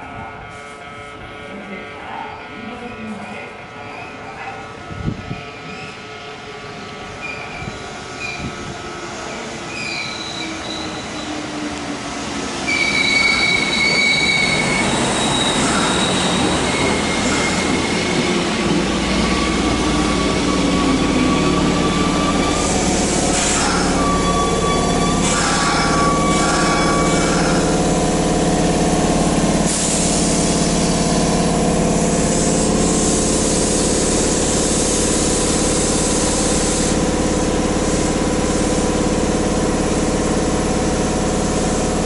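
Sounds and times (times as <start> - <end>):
low train rumble: 0.0 - 42.0
electric train running noise: 7.1 - 42.0
wheel and brake squeals: 9.7 - 11.4, 12.7 - 18.0.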